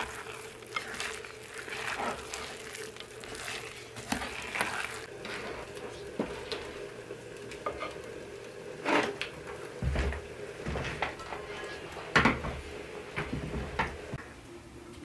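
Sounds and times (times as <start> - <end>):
wooden spoon scraping a bowl: 0.0 - 6.8.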